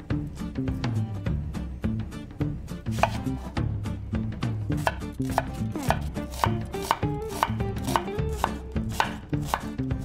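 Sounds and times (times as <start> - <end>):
knife cutting onion on board: 2.8 - 3.7, 4.4 - 10.0.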